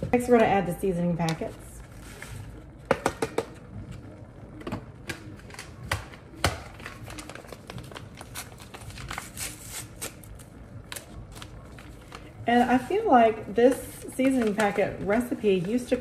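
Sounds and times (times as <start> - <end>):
seasoning packets tearing and crinkling: 5.2 - 12.9.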